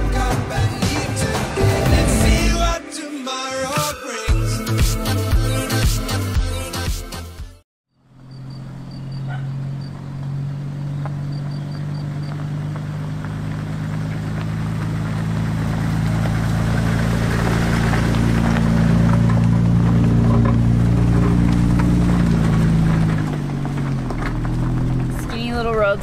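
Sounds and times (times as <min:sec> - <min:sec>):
truck engine running at low speed: 0:07.9 - 0:26.0.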